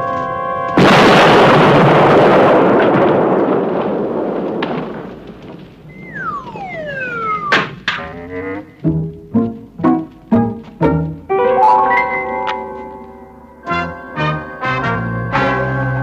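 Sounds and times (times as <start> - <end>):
bomb explosion: 0.8 - 8.7
falling whistle tone: 5.9 - 7.8.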